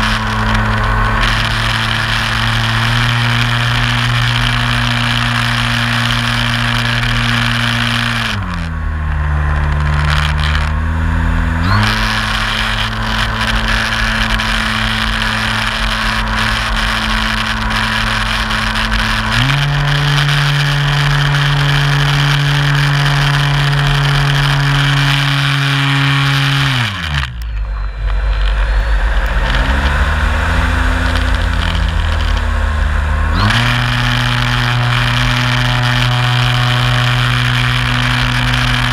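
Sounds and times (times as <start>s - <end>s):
electric motor and propeller drone: 0.0s - 38.9s.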